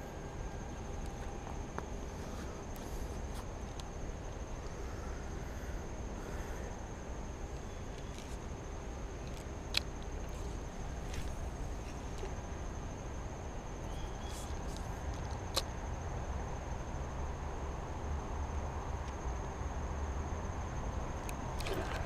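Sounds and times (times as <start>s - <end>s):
thin high whine: 0.0s - 5.1s.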